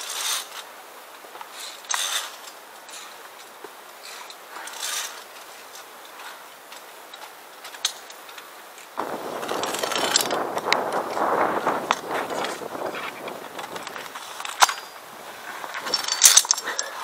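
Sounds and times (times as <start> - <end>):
faint clicks and rustles: 0.0 - 17.0
carabiners clicking on steel cable: 1.5 - 6.2, 9.4 - 15.0, 15.7 - 17.0
wind buffeting microphone: 9.0 - 14.2.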